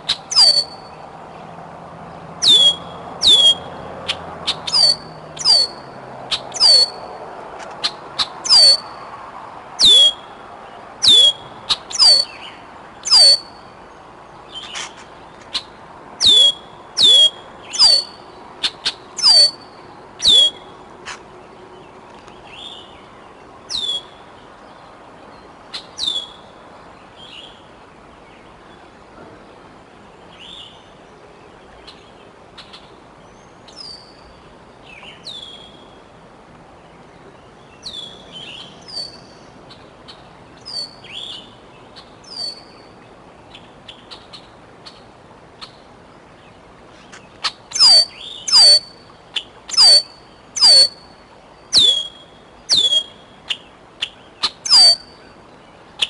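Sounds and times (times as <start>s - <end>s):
young eagle chirping calls: 0.1s - 0.8s, 2.4s - 3.6s, 4.6s - 5.8s, 6.5s - 7.0s, 8.4s - 8.8s, 11.0s - 12.4s, 13.1s - 13.5s, 16.2s - 18.1s, 19.2s - 19.6s, 20.2s - 20.6s, 47.7s - 49.0s, 49.7s - 51.0s, 54.6s - 55.2s.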